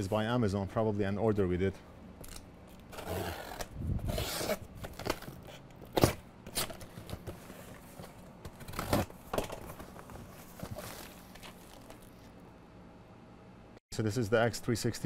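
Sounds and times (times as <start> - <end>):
packing tape being cut: 2.3 - 7.6, 8.4 - 9.1
tape and cardboard scraping: 2.7 - 12.3.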